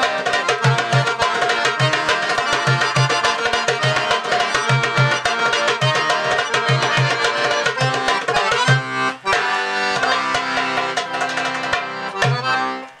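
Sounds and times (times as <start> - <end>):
accordion playing: 0.0 - 13.0.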